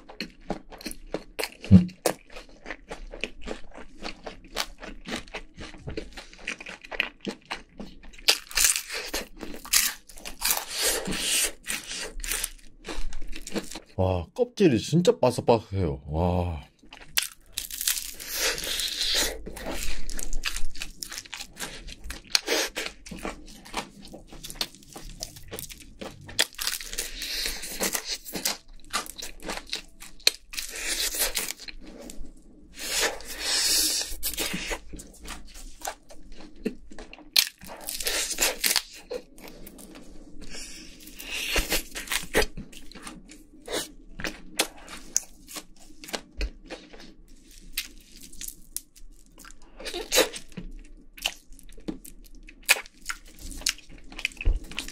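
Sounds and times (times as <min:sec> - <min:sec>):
crunching fried chicken skin: 0:00.0 - 0:14.0, 0:16.8 - 0:32.2, 0:32.8 - 0:39.6, 0:40.4 - 0:54.9
quiet chewing: 0:00.0 - 0:14.0, 0:16.6 - 0:54.9
meat tearing: 0:17.0 - 0:21.8.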